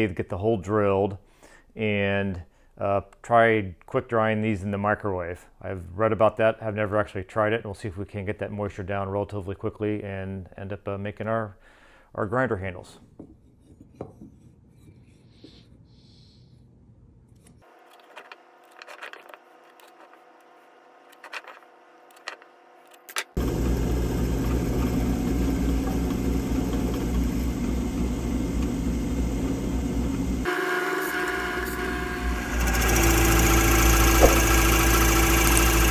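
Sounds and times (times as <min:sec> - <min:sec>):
drill press boring into wood: 0:23.3 - 0:35.9.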